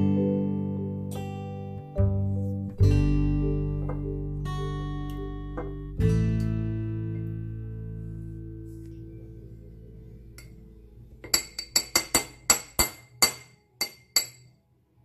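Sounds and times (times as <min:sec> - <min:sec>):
spoon clinking on glass ramekin: 0:11.2 - 0:14.6.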